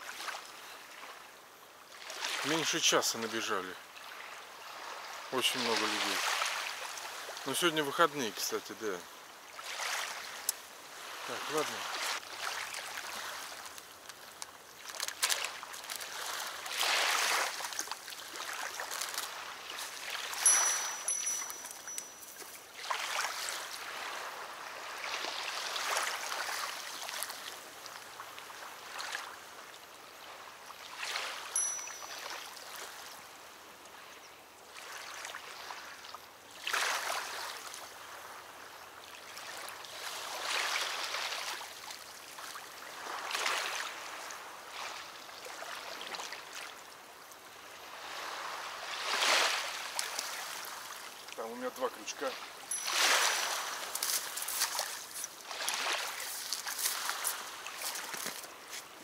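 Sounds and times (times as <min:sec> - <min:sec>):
small waves lapping: 0:00.0 - 0:59.0.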